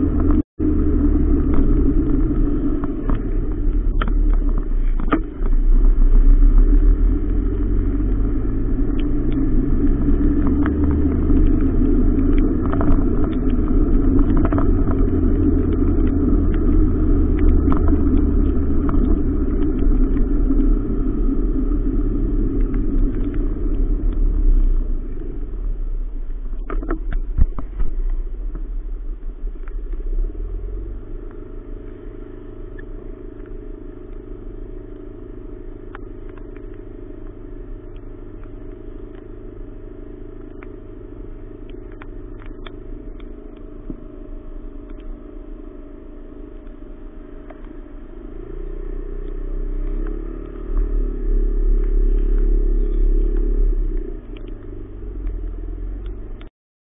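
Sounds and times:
faint ticks: 1.5 - 30.3, 31.0 - 56.5.

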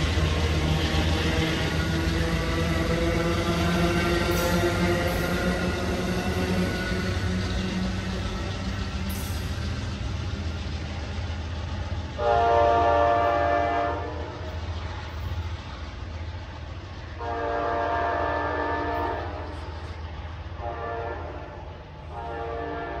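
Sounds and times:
train horn blasts: 12.2 - 14.3, 17.2 - 19.5, 20.6 - 23.0.

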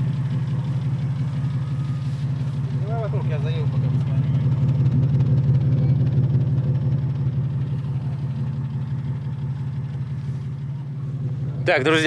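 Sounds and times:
car engine running at low revs: 0.0 - 12.0.

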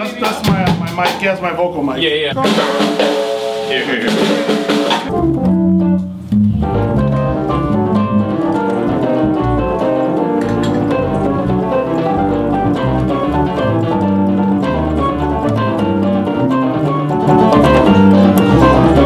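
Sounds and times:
drum kit with cymbals: 0.0 - 12.7
keyboard organ chords: 2.3 - 19.0.

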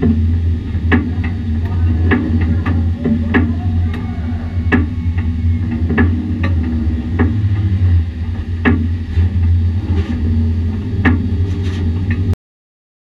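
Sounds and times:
knocks and rattles: 0.0 - 12.4
truck engine running at low revs: 0.0 - 12.4.

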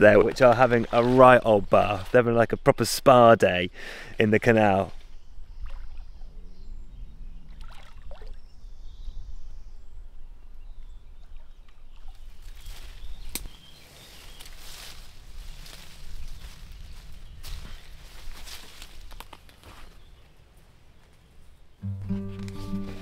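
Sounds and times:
ducks splashing in water: 0.0 - 2.2, 7.5 - 8.4.

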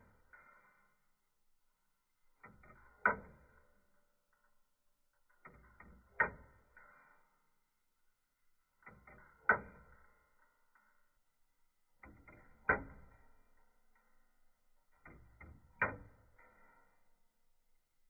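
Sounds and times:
watch escapement ticking: 11.8 - 16.8.

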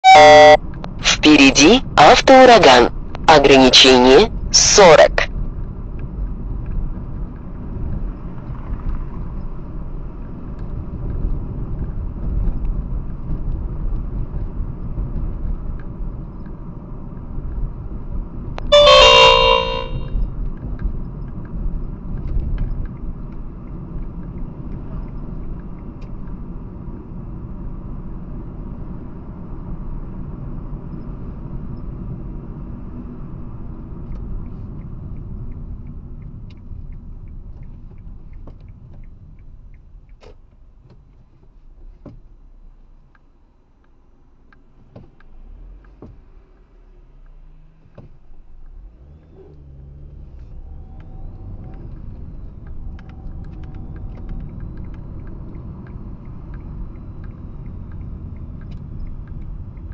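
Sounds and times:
loud horn-like tone: 0.0 - 1.2, 18.7 - 20.1.

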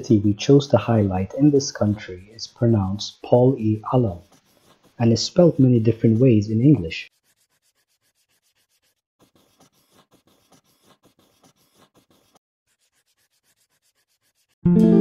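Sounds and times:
pen scratching on paper: 0.3 - 14.6
music: 14.6 - 15.0.

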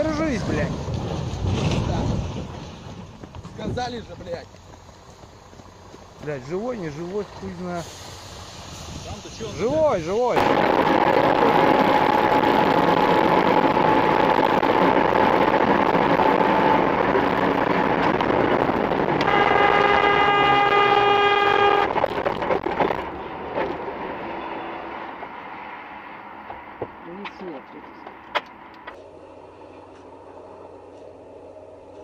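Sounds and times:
car road and wind noise: 0.0 - 32.0
vehicle horn blast: 19.2 - 22.0.

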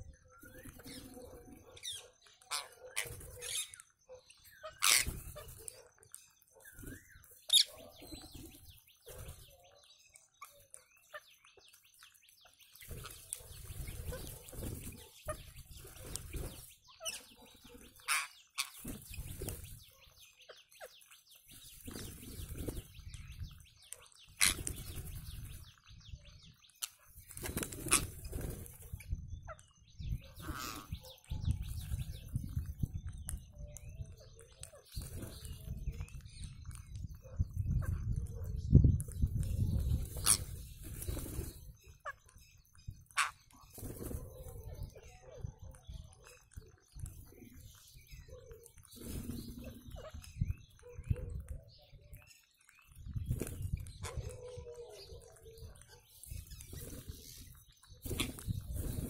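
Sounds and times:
parakeets chattering and screeching: 0.0 - 25.9, 26.5 - 38.4, 39.0 - 59.0
wings fluttering: 2.5 - 3.8, 4.7 - 9.6, 12.5 - 20.1, 20.8 - 26.0, 26.8 - 29.2, 34.7 - 37.2, 38.8 - 45.0, 45.8 - 50.5, 52.8 - 59.0.

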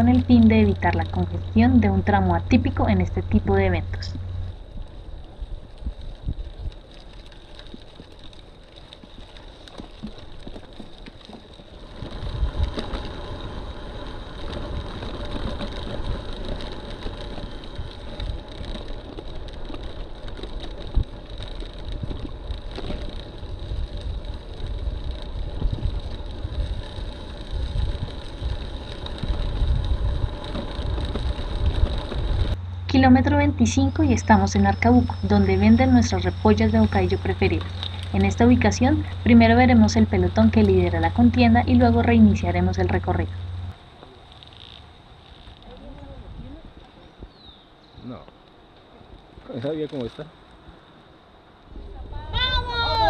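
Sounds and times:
tyres rolling over dirt road: 0.0 - 53.0
wind buffeting microphone: 11.8 - 43.8, 45.6 - 48.2.

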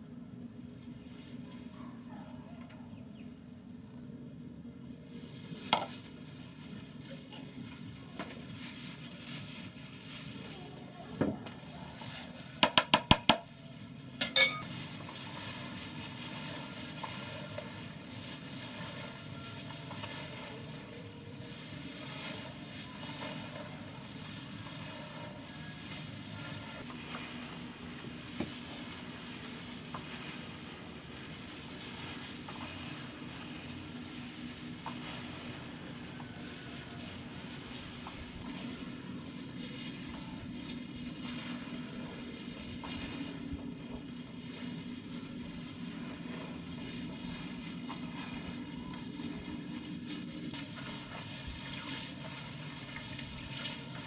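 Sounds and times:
wet squelching of kneaded meat: 4.8 - 12.6, 13.4 - 54.0.

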